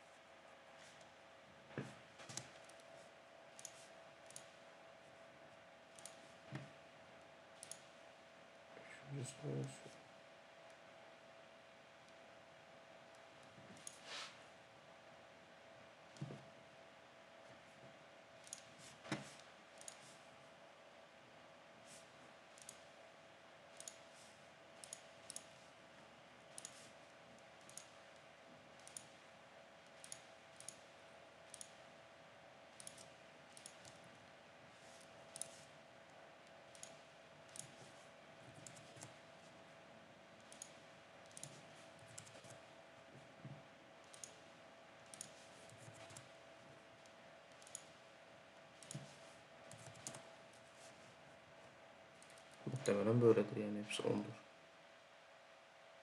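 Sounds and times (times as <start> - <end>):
faint steady hum: 0.0 - 56.0
computer mouse buttons clicking: 3.6 - 4.6, 5.9 - 6.7, 7.6 - 7.9, 13.1 - 14.0, 18.4 - 20.2, 22.5 - 22.9, 23.7 - 24.2, 24.8 - 25.6, 26.5 - 27.0, 27.6 - 28.2, 28.8 - 29.2, 29.8 - 30.9, 31.5 - 31.8, 32.7 - 34.0, 34.8 - 35.7, 36.7 - 39.2, 40.4 - 42.6, 44.0 - 44.4, 45.0 - 46.3, 47.0 - 48.0, 48.8 - 50.9, 52.2 - 53.0.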